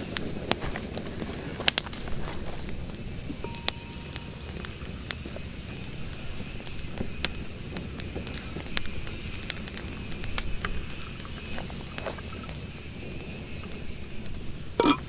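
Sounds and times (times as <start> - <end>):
sharp pops of fire: 0.0 - 15.0
wood fire crackling: 0.0 - 15.0.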